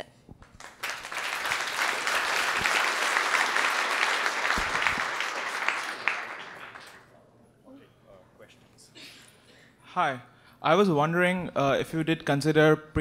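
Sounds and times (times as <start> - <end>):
audience applauding: 0.4 - 7.1.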